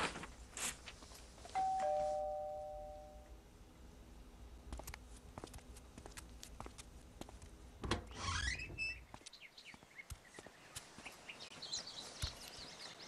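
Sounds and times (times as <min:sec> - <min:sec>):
birds chirping: 0:08.9 - 0:13.0.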